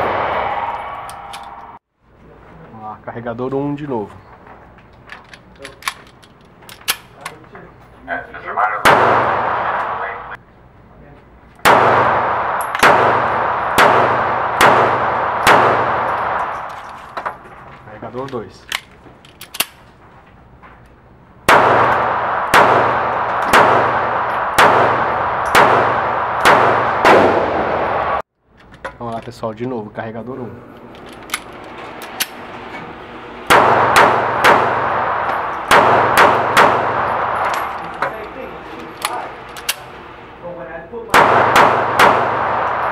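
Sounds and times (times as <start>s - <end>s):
pistol shots echoing indoors: 8.8s - 10.3s, 11.6s - 16.8s, 21.5s - 28.2s, 33.5s - 37.9s, 41.1s - 42.9s.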